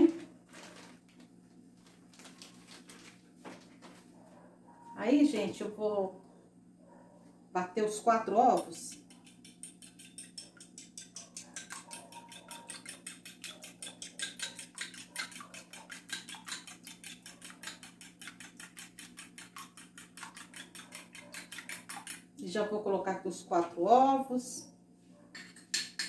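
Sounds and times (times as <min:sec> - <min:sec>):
fork clicking against ceramic bowl: 0:08.5 - 0:22.3, 0:25.4 - 0:26.0.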